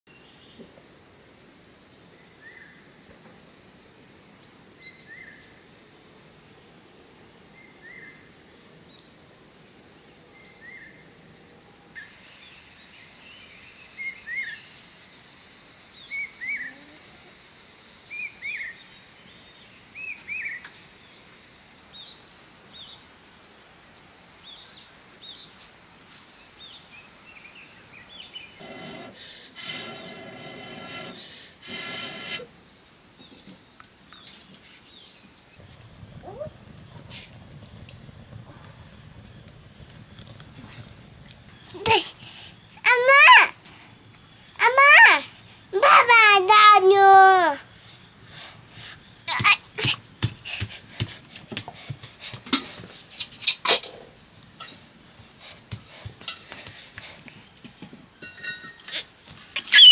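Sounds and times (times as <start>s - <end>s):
bird chirping: 58.7s - 59.9s.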